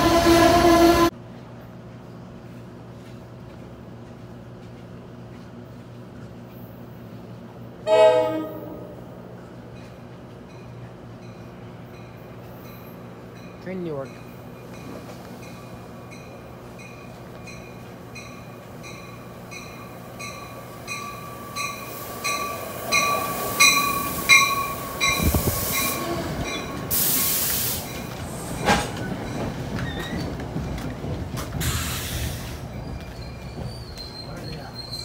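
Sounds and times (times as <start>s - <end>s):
train pulling into station: 0.0s - 35.0s
train bell ringing: 9.7s - 26.8s
air hiss bursts: 26.9s - 28.0s, 31.6s - 32.6s
high brake squeal: 31.6s - 35.0s.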